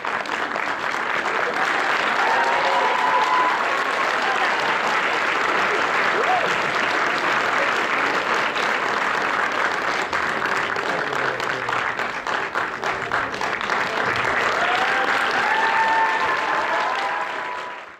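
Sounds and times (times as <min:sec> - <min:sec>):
audience clapping: 0:00.0 - 0:17.9
high cheering calls: 0:01.5 - 0:05.1, 0:14.3 - 0:17.9.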